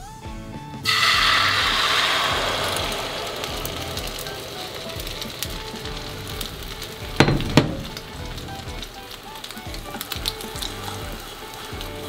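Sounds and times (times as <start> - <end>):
egg mixture sizzling in a pan: 0.8 - 12.0
quick knocks: 7.1 - 8.4.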